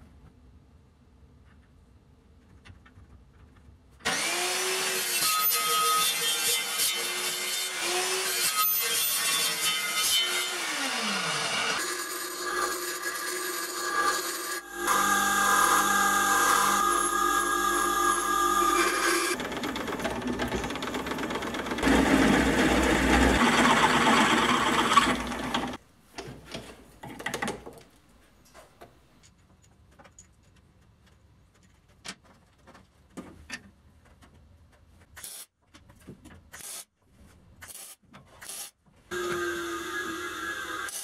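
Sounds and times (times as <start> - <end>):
workshop power tool running: 4.0 - 25.8, 39.1 - 41.0.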